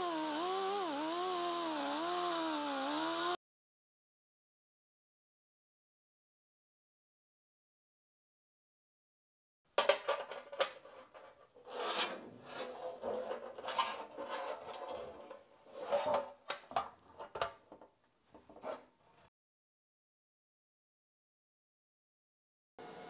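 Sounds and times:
metal tank scraping on table: 10.8 - 16.4.

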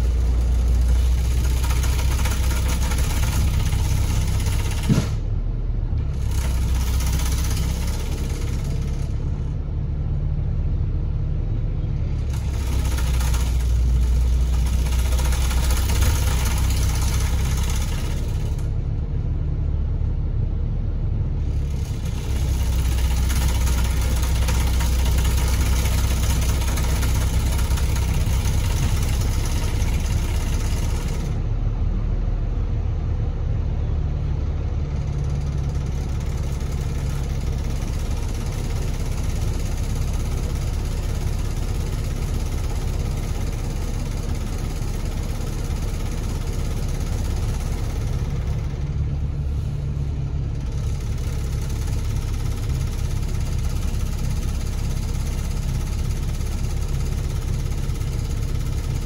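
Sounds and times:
bus diesel engine: 0.0 - 59.0
road hiss: 45.2 - 56.0.

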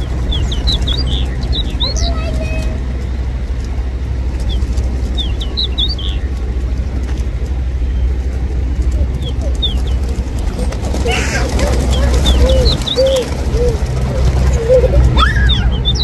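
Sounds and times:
road traffic rumble: 0.0 - 16.0
pigeon wing flaps: 6.2 - 15.5.

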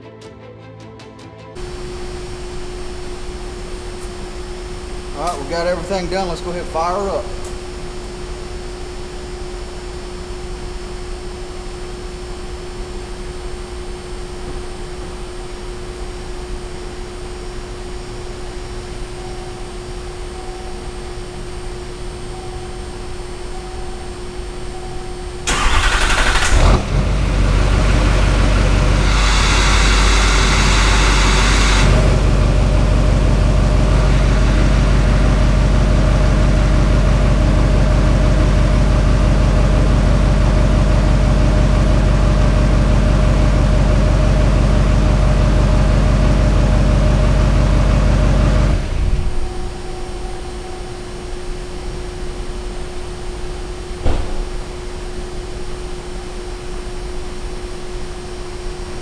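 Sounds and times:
diesel engine idling: 21.2 - 51.8
engine starter cranking: 25.5 - 27.0.

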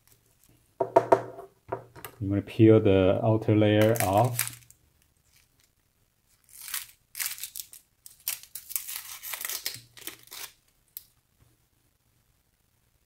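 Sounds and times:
onion skin tearing: 3.8 - 4.7, 6.3 - 10.6.

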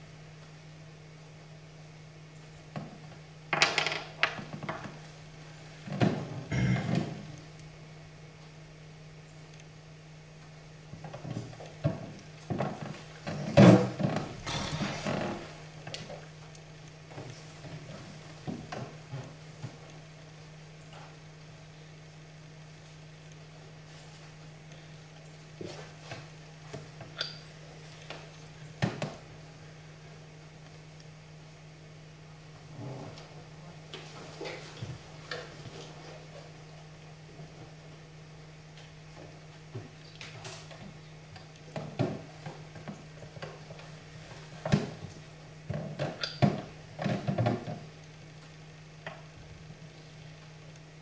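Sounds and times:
chess pieces knocking on board: 3.6 - 4.4.

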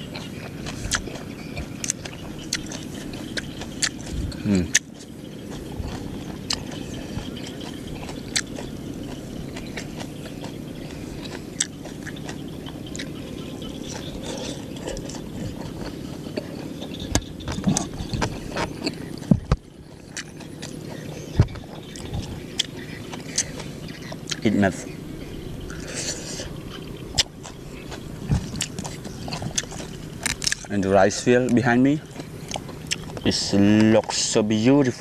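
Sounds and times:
low background noise: 0.0 - 35.0
wet chewing: 0.0 - 35.0.

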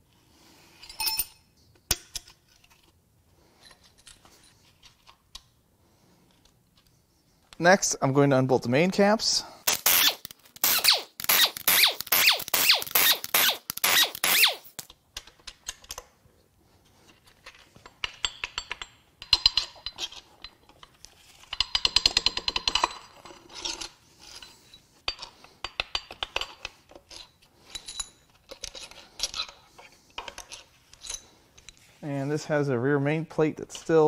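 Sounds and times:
metal clinks and rattles: 0.8 - 1.5, 17.4 - 31.9
air impact wrench hammering: 9.7 - 14.8.

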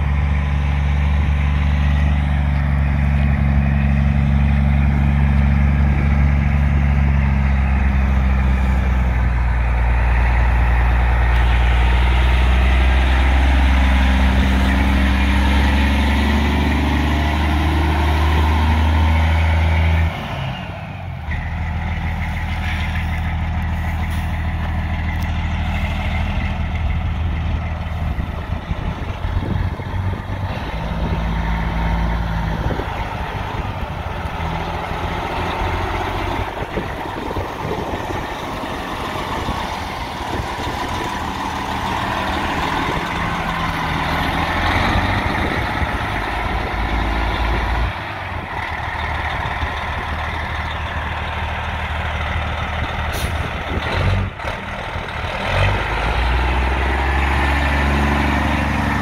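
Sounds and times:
truck diesel engine: 0.0 - 59.0.

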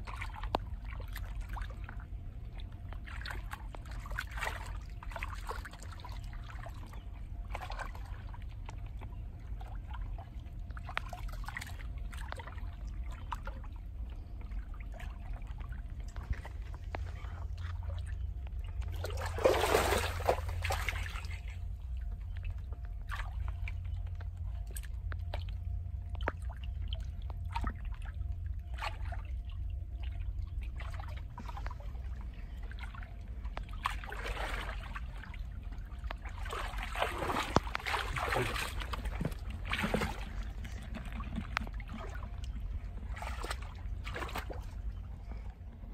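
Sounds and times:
water splashes: 0.0 - 45.6
low rumble: 0.0 - 45.9
muddy water sloshing: 0.0 - 45.9.

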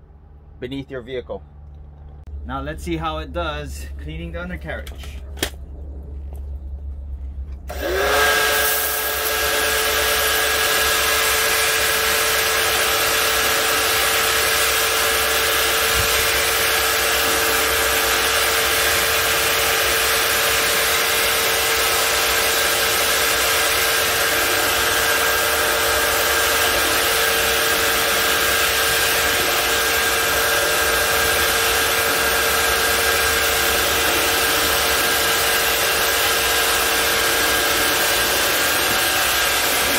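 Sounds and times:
pressure washer whining: 6.3 - 39.9.

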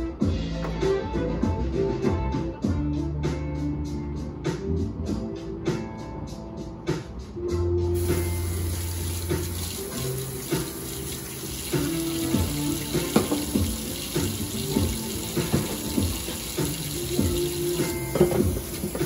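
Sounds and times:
background music with bass and beat: 0.0 - 19.0
water running from a tap: 8.0 - 19.0.

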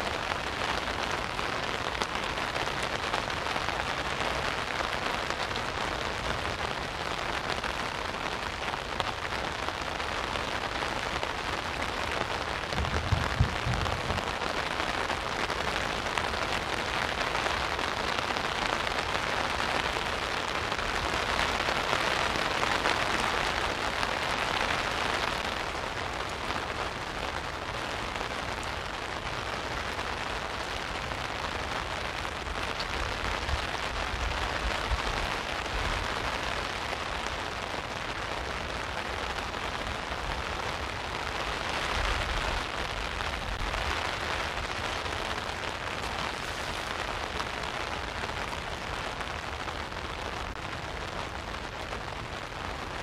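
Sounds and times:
rain on an umbrella: 0.0 - 53.0.

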